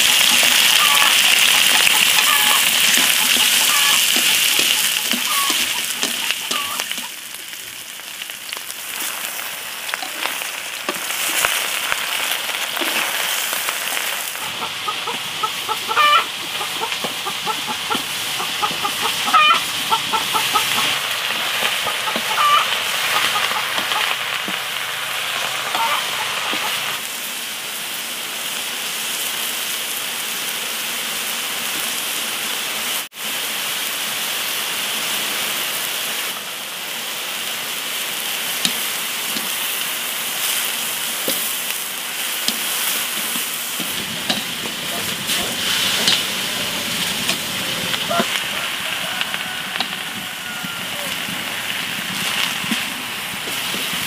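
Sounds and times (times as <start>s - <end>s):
steady hiss: 0.0s - 54.0s
chickens clucking: 0.1s - 7.3s, 12.8s - 27.0s, 42.2s - 54.0s.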